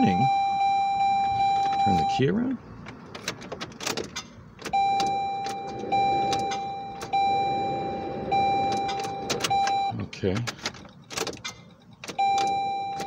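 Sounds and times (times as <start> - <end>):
car warning chime dinging: 0.0 - 2.6, 4.6 - 13.0
car key rattling in ignition: 2.8 - 7.2, 8.1 - 13.0.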